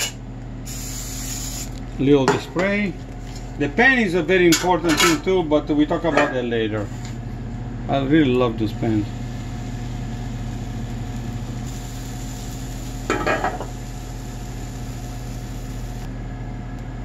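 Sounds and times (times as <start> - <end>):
steady low hum: 0.0 - 17.0
batter sizzling in pan: 8.9 - 16.1.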